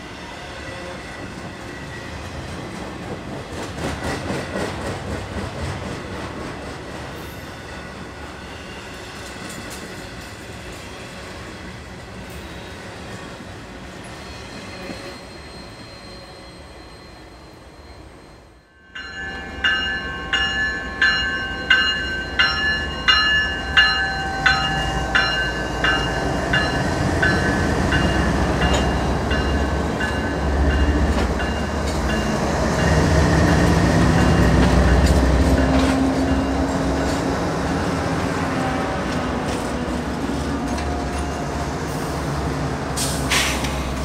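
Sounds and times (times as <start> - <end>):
diesel locomotives passing: 0.0 - 44.0
rail cars rolling by: 0.0 - 44.0
bell ringing: 18.7 - 35.2.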